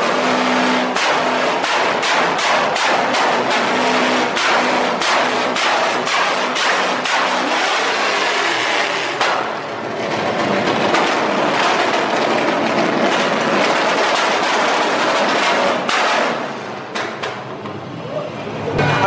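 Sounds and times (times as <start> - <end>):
exhaust pops: 0.0 - 17.4
car engine revving hard: 3.1 - 9.2.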